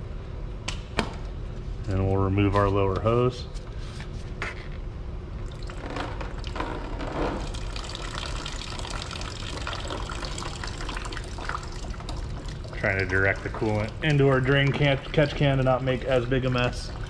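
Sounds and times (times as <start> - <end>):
liquid draining into a can: 5.4 - 17.0.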